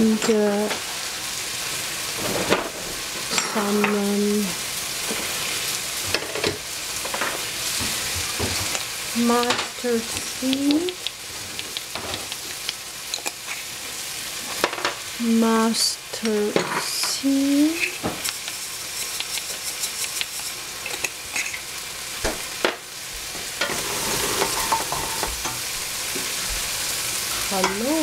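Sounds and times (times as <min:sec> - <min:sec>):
eggplant sizzling in a pot: 0:00.0 - 0:28.0
seeds shaken from a jar: 0:18.3 - 0:20.7.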